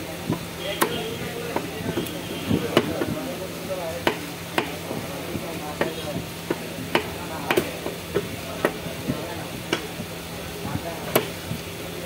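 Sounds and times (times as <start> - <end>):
cleaver chopping on wooden block: 2.7 - 3.2, 4.0 - 5.1, 5.8 - 8.8, 11.1 - 11.4.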